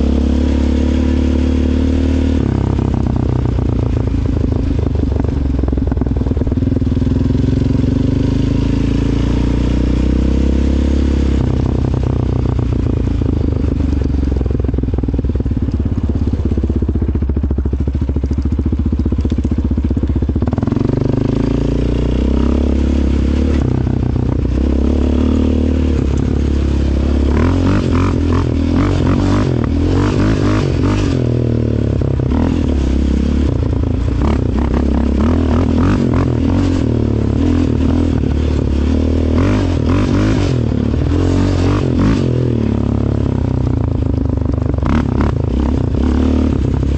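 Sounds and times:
atv engine running under throttle: 0.0 - 46.9.

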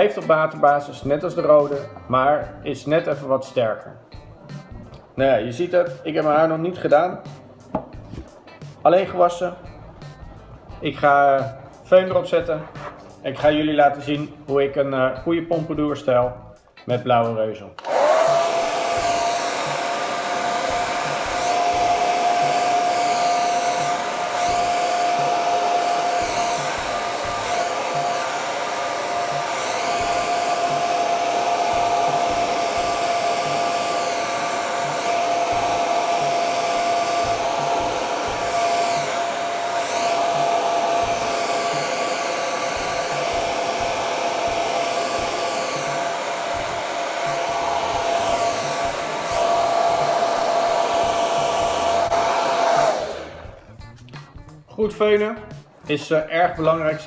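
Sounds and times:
hair dryer blowing: 11.0 - 12.7, 17.8 - 53.7.

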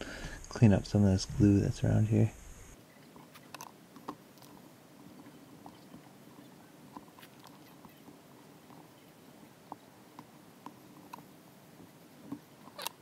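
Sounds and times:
faint clicks and crackles: 2.8 - 13.0.

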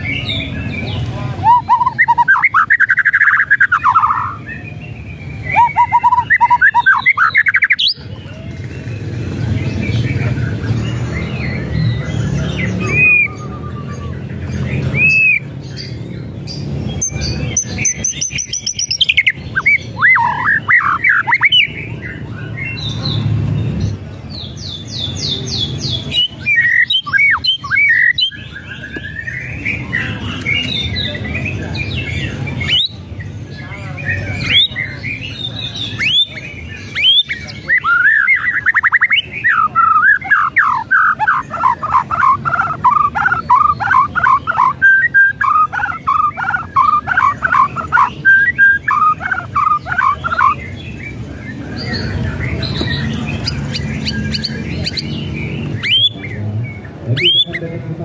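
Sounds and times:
bird singing whistles and trills: 0.0 - 8.4, 9.6 - 16.0, 16.6 - 23.2, 24.6 - 33.1, 34.0 - 57.6.

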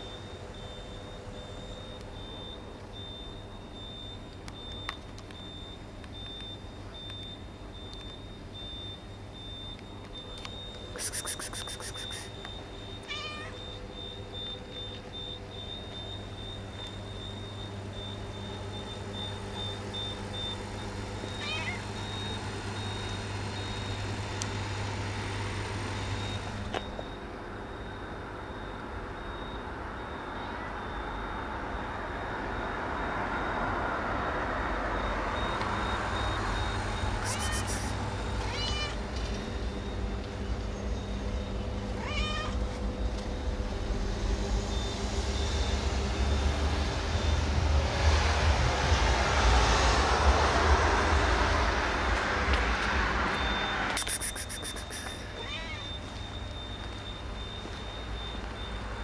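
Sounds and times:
street traffic: 9.7 - 59.0
cat meowing: 11.0 - 12.3, 13.0 - 13.6, 21.4 - 21.8, 37.2 - 39.0, 42.0 - 42.6, 54.0 - 56.0
engine hum: 34.6 - 57.0.

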